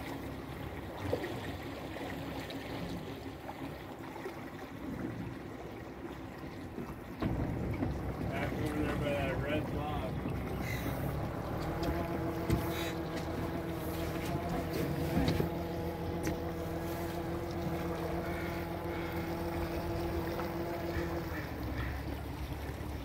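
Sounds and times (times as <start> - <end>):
boat engine humming: 0.0 - 23.0
faint steady whine: 4.8 - 23.0.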